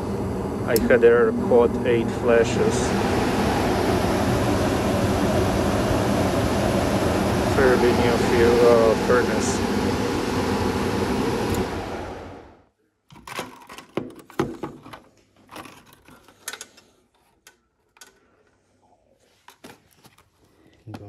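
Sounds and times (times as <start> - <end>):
furnace air rushing with hum: 0.0 - 12.7.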